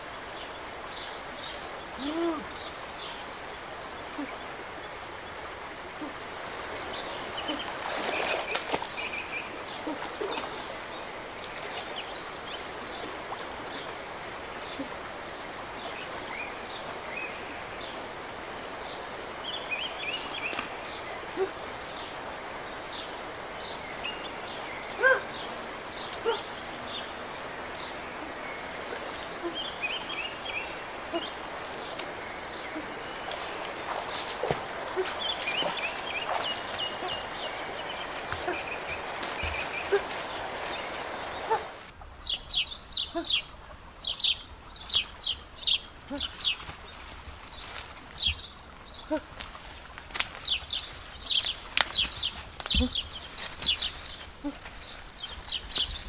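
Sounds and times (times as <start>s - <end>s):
birds chirping: 0.0s - 49.4s, 50.3s - 56.0s
stream rushing: 0.0s - 56.0s
water splashing from wading: 5.8s - 22.4s, 27.3s - 41.9s.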